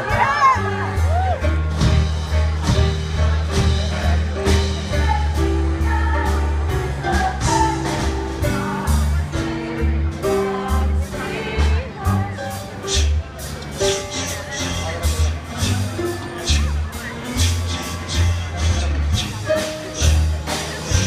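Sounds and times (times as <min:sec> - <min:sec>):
live band playing show tune: 0:00.0 - 0:21.0
woman singing: 0:04.9 - 0:08.9.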